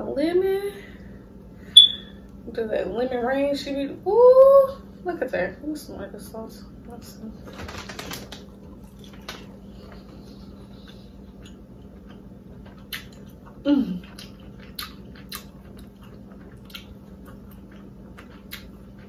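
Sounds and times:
faint steady hum: 0.0 - 19.0
wet chewing: 8.3 - 19.0.

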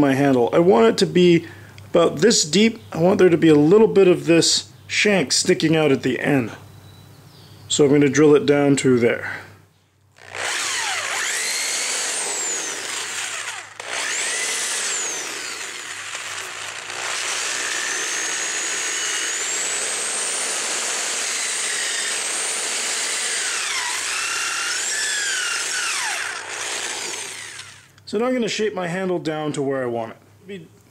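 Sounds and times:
electric drill boring into wood: 10.2 - 28.0.

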